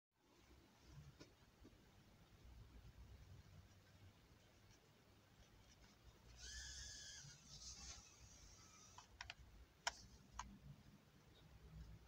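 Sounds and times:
drone motors whining: 6.4 - 7.4.

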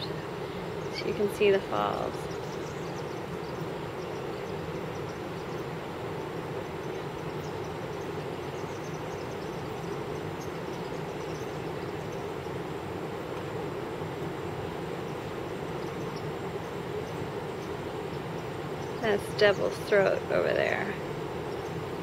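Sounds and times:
distant waterfall roar: 0.0 - 22.0.

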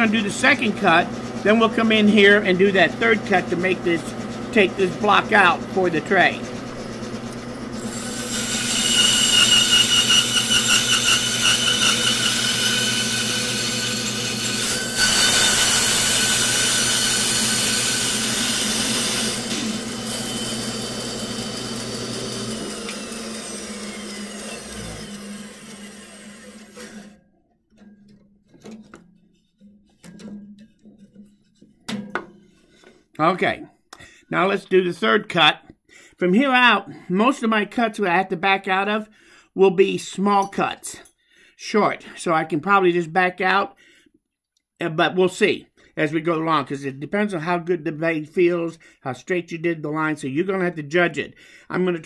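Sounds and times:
bandsaw coasting down: 0.0 - 27.2
bandsaw cutting wood: 0.0 - 27.2.

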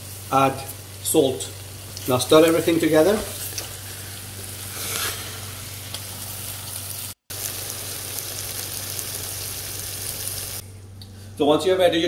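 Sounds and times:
curry sizzling in a frying pan: 0.0 - 10.6
steady low hum: 7.5 - 12.0.

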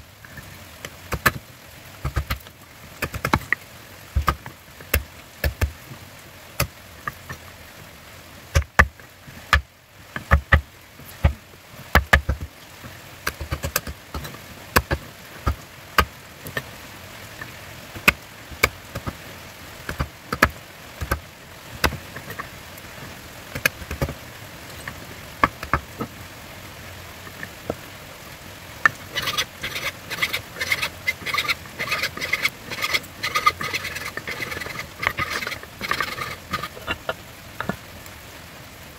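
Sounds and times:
file rasping on wood: 29.2 - 36.8.

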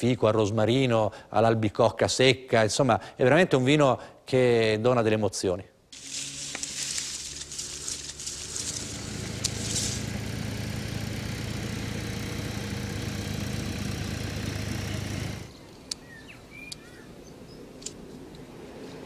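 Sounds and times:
secateurs clicking: 6.0 - 10.1
tractor diesel engine running: 6.0 - 15.5.

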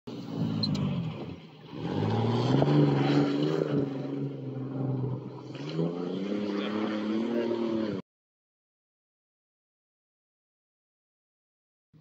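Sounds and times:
car engine revving hard: 0.3 - 8.0.

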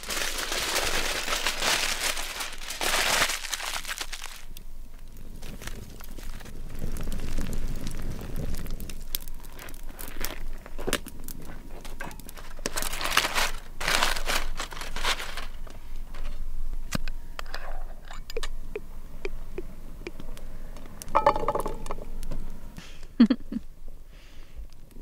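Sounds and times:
aluminium foil crinkling and tearing: 0.0 - 17.0.

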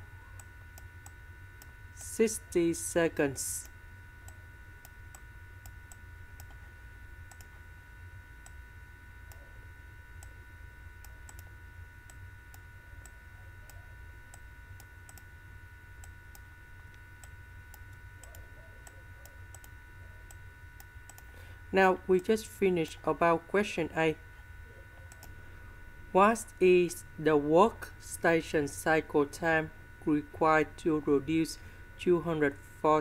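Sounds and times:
faint high whine: 0.0 - 33.0
low electrical hum: 0.0 - 33.0.

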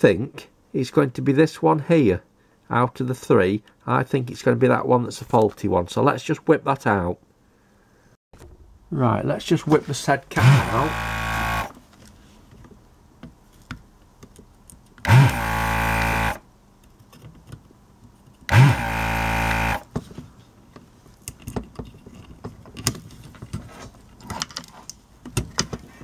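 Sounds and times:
desoldering pump motor whining: 10.4 - 11.8, 15.0 - 16.4, 18.5 - 19.9.

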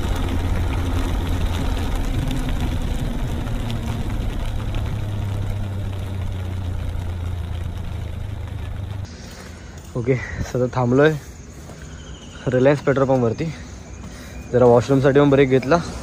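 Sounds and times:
motorcycle engine running: 0.0 - 9.4
road and wind noise: 0.0 - 16.0.

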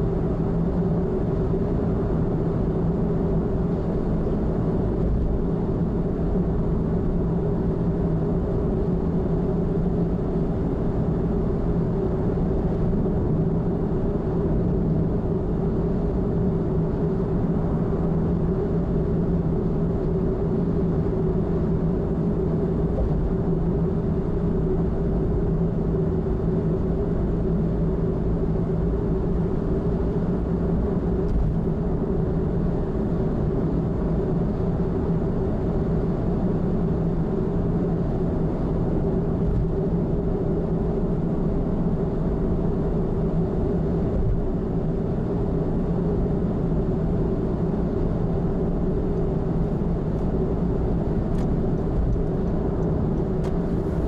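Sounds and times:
car road and engine noise: 0.0 - 54.0.

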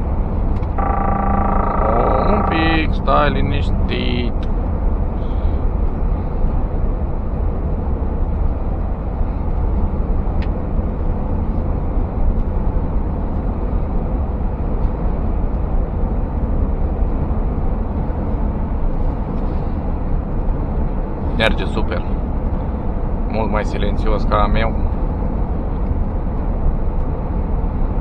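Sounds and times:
truck engine and road rumble: 0.0 - 28.0.

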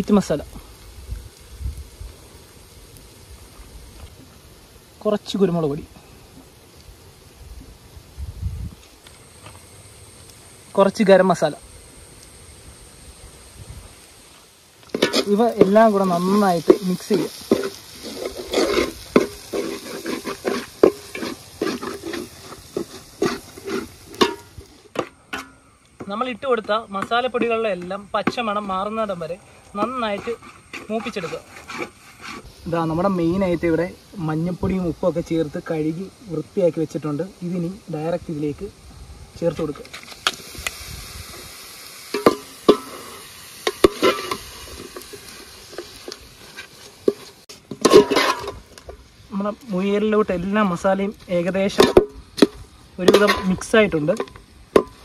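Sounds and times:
food frying in oil: 0.0 - 55.0
metal spatula scraping pan: 14.9 - 25.6, 29.8 - 32.5, 42.1 - 48.9, 51.8 - 55.0.

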